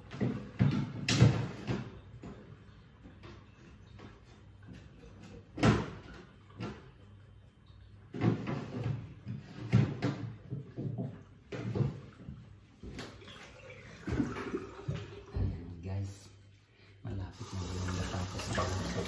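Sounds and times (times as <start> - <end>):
kitchen knocks and clatter: 8.1 - 12.2.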